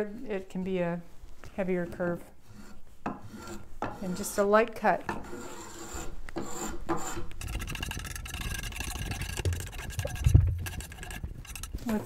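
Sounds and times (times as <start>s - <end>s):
edge tool scraping wood: 2.4s - 4.5s, 5.1s - 12.0s.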